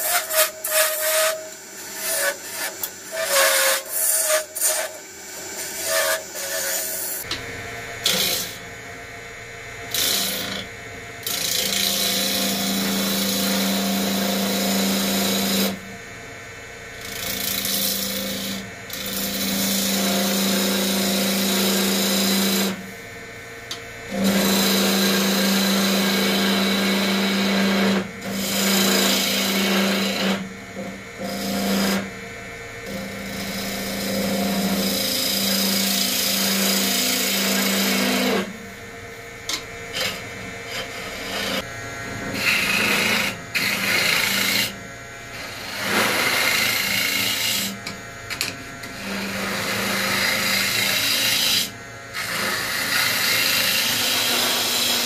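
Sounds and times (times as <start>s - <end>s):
turning tool scraping wood: 0.0s - 7.3s, 24.1s - 30.4s, 32.9s - 38.5s, 39.6s - 55.0s
wood lathe humming: 0.0s - 7.4s, 8.0s - 8.7s, 9.9s - 15.7s, 17.0s - 55.0s.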